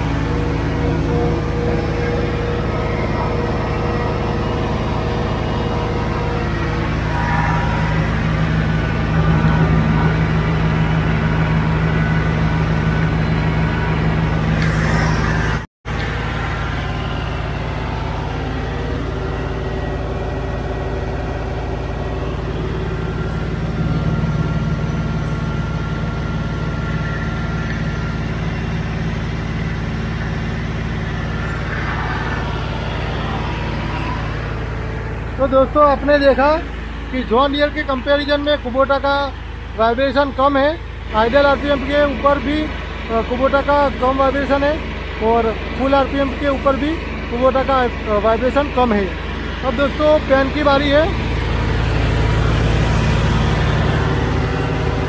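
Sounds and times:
tractor diesel engine at full throttle: 0.0s - 55.0s.

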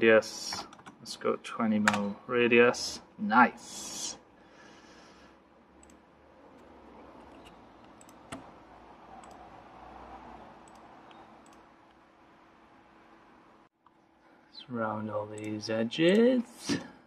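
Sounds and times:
computer mouse clicks: 5.8s - 6.0s, 6.6s - 8.5s, 9.2s - 9.4s, 10.6s - 11.6s.

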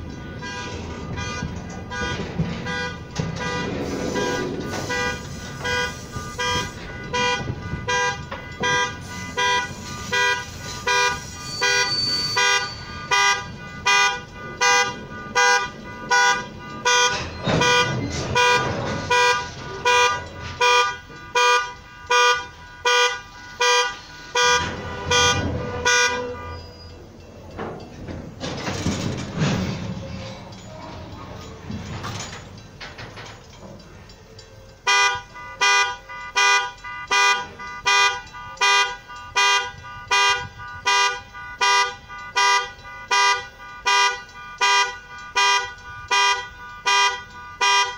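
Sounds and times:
train wheels rolling: 0.0s - 21.9s, 23.4s - 34.8s
crossing bell ringing: 0.0s - 47.9s.

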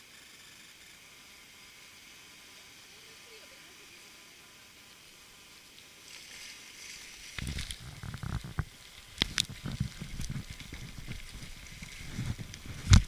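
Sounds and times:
faint steady hiss: 0.0s - 13.0s
hand rubbing on camera: 9.3s - 13.0s.

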